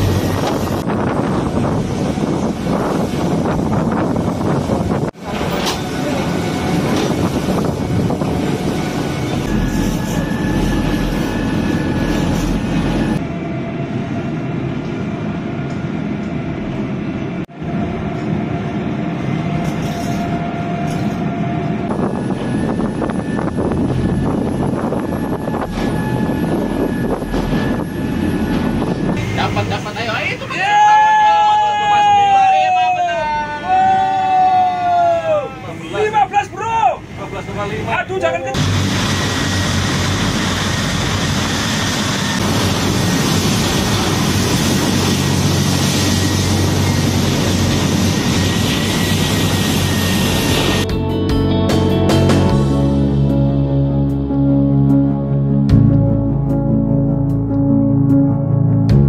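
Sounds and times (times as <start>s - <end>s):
ferry engine drone: 0.0s - 59.0s
water rushing along hull: 38.6s - 50.8s.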